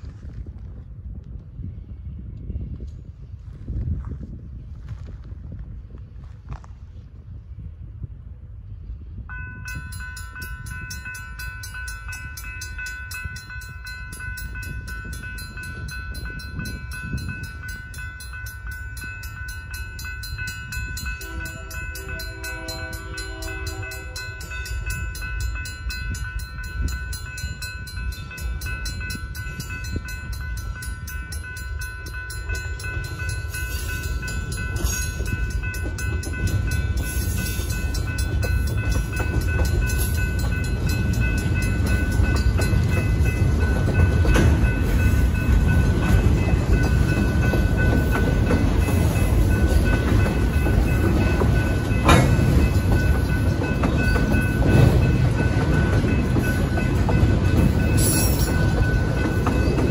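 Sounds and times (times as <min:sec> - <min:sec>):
train rumble: 0:00.0 - 0:59.9
crossing bells ringing rapidly: 0:09.3 - 0:59.9
locomotive air horn chord: 0:21.2 - 0:24.5.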